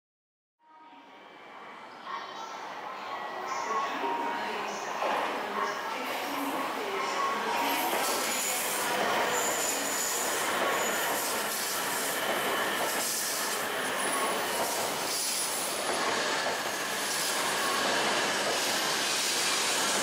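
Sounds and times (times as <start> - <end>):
train wheels rushing on rails: 7.6 - 20.0.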